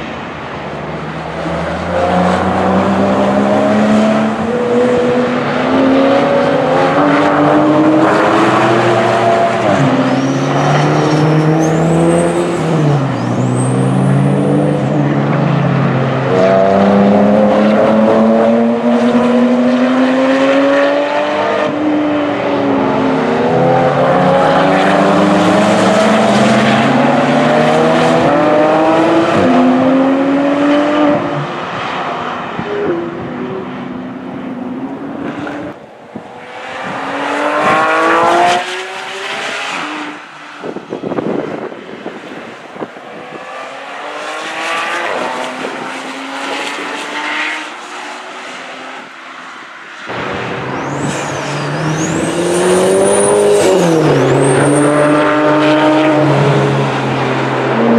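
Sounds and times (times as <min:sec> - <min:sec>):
sports car engines racing: 0:00.0 - 0:57.9
high squeals: 0:10.1 - 0:14.4, 0:50.7 - 0:55.1.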